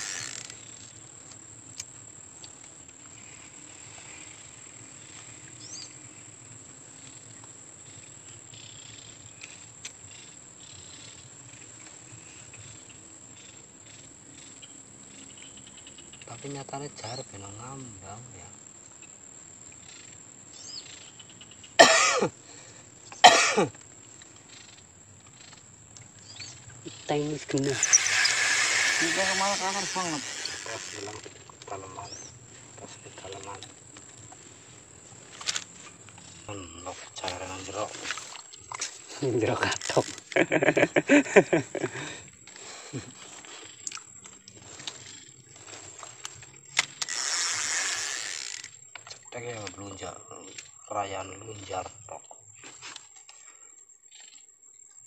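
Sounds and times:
person coughing: 21.8 - 22.3, 23.2 - 23.7
person's voice: 29.0 - 32.2.

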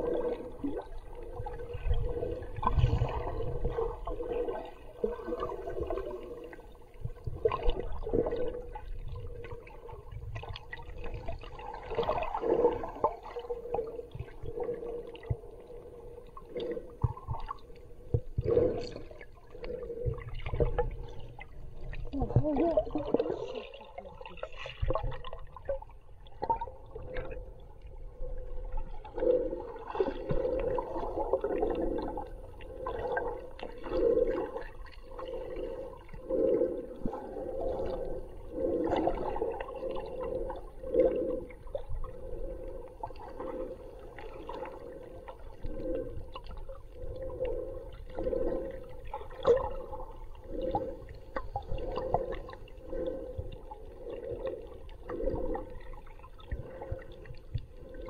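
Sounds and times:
muffled water sloshing underwater: 0.0 - 58.0.

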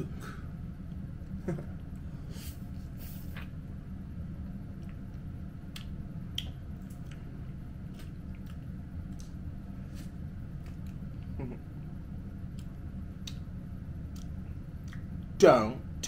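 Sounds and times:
steady low hum: 0.0 - 16.0
person chewing and eating: 4.7 - 15.2.

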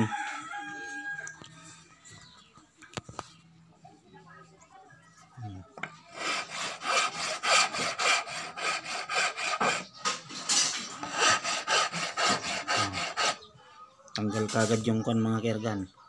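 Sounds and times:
steel tool scraping charred wood: 6.1 - 13.4.

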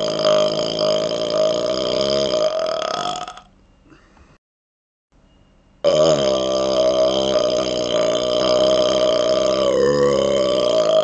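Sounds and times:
man burping: 0.0 - 3.5, 5.8 - 11.0.

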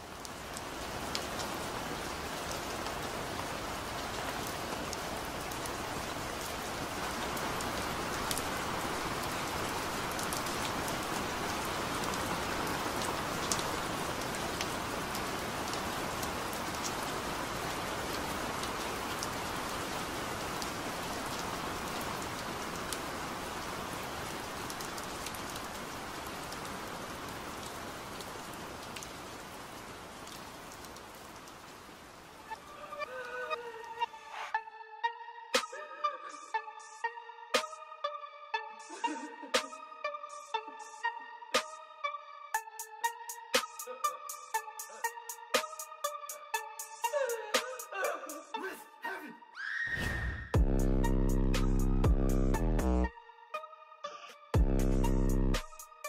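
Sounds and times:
raindrop ticks: 0.0 - 32.6
steady rain falling: 0.0 - 34.6, 38.5 - 48.8, 50.6 - 53.1, 54.6 - 56.0.

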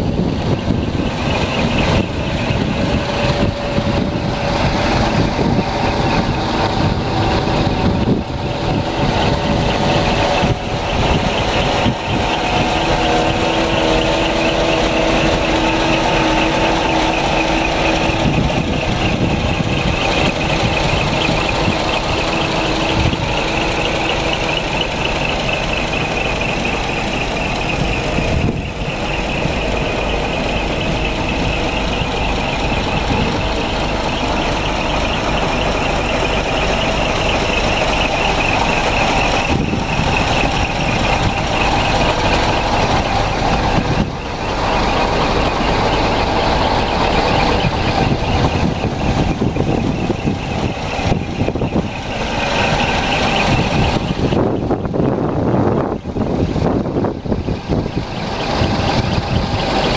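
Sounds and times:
truck diesel engine idling: 0.0 - 59.9.

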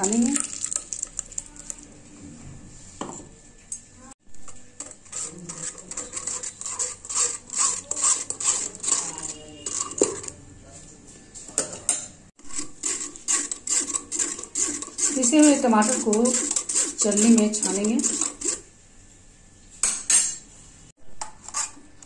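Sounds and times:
spoon scraping metal mesh strainer: 0.0 - 1.8, 4.4 - 10.4, 11.9 - 18.7, 21.2 - 21.9.

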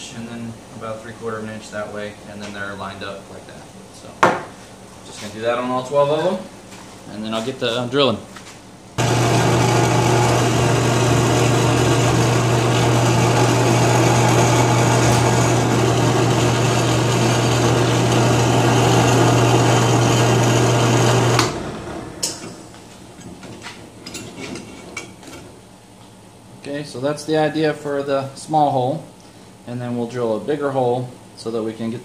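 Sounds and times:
drill bit drilling plastic pipe: 9.0 - 21.6
drill press motor humming: 9.0 - 22.6.

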